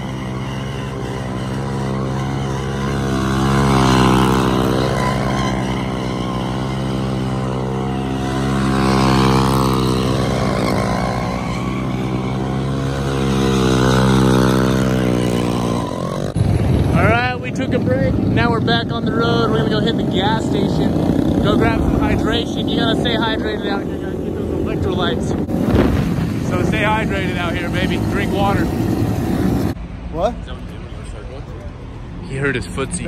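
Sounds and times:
mini bike engines running: 0.0 - 25.6.

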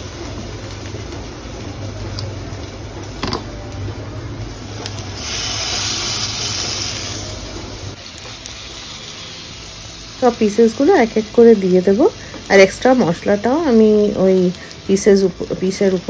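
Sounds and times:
chicken sizzling in a pan: 4.4 - 16.0.

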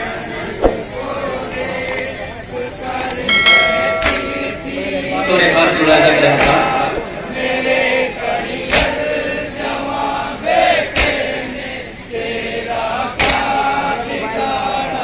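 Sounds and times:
men chanting a lament in chorus: 0.0 - 15.0
chest-beating slaps: 0.6 - 0.9, 11.0 - 11.2.

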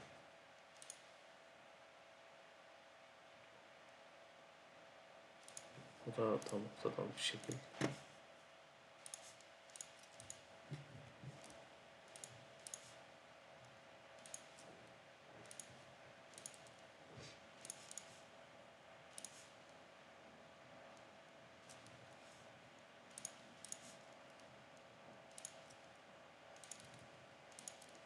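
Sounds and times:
faint steady hum: 0.0 - 28.0
computer mouse clicking: 0.6 - 1.1, 5.4 - 5.8, 6.4 - 6.6, 7.4 - 8.0, 9.0 - 13.0, 13.6 - 14.7, 15.4 - 16.8, 17.6 - 18.2, 19.1 - 19.8, 20.9 - 22.0, 23.1 - 24.6, 25.3 - 26.0, 26.6 - 28.0.

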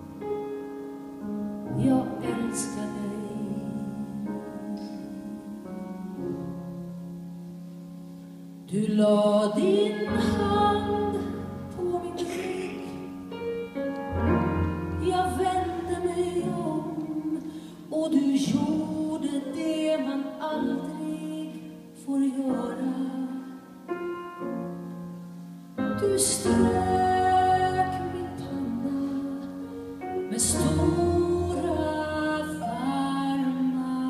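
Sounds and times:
piano: 0.0 - 34.0
woman singing a slow ballad: 1.6 - 5.8, 8.6 - 13.3, 14.8 - 23.8, 25.8 - 34.0
double bass: 13.4 - 17.1, 26.5 - 32.3.

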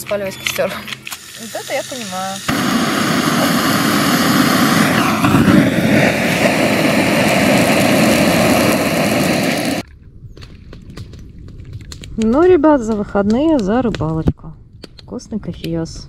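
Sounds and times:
gas torch hissing: 1.0 - 9.8.

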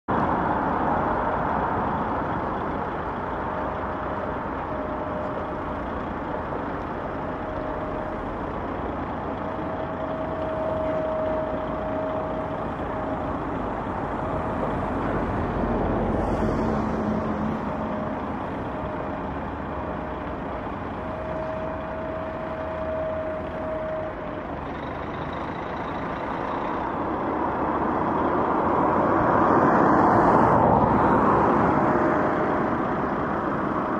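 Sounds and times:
diesel truck engine under load: 0.1 - 33.9.

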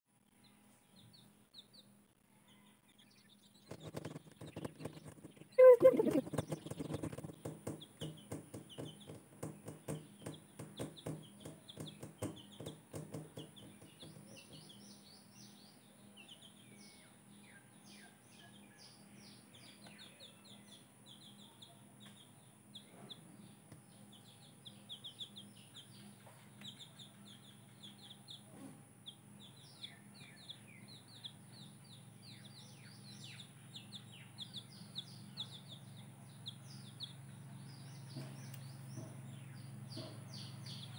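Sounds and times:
baby chicks peeping: 0.3 - 40.9
soft low knocks: 3.7 - 14.8.

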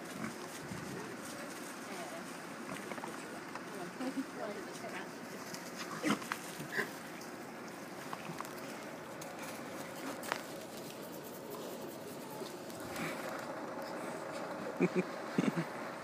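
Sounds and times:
pigs rooting through dry leaves: 0.0 - 14.4.

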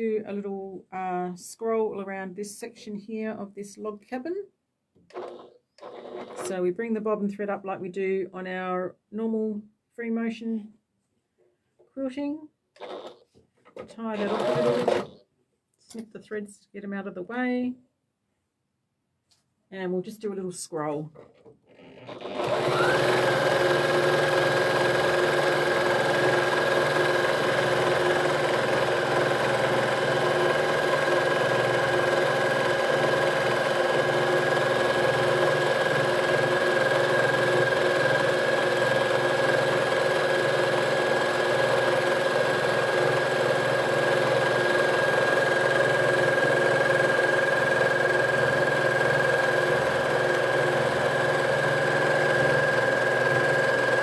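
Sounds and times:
quilting machine running: 5.1 - 6.5, 12.8 - 13.2, 14.1 - 15.2, 22.0 - 54.0.

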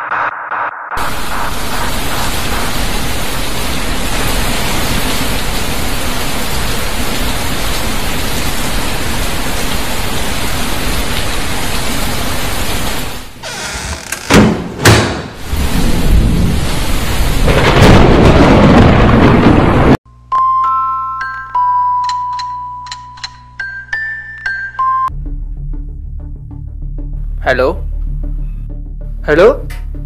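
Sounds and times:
heavy rain: 1.0 - 13.4, 15.4 - 20.0.

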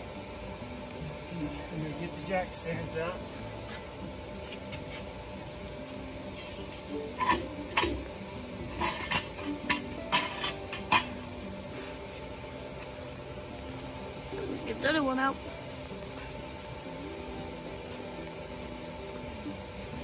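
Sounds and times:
metal jack stand clanking: 7.2 - 11.4.

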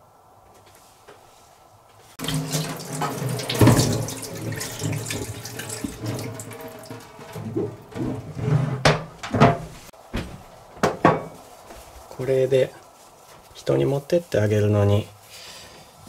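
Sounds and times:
tap running into metal sink: 2.2 - 8.2
sharp knocks: 8.8 - 11.4.

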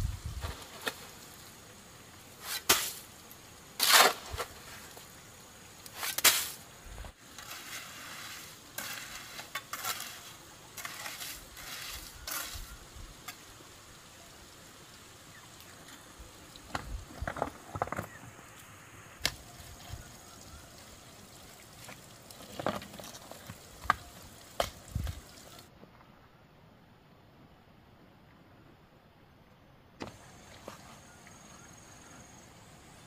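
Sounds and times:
trowel scraping mortar and gravel: 2.3 - 3.1, 3.7 - 5.1, 5.8 - 13.5.

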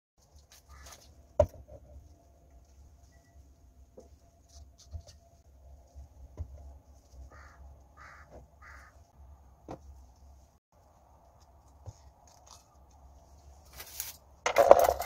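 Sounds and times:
low steady hum: 0.2 - 15.0.

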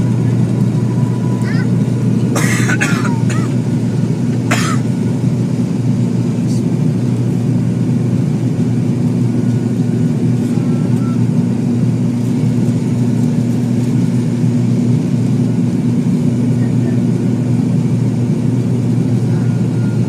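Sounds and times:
turboprop engines droning: 0.0 - 20.0.

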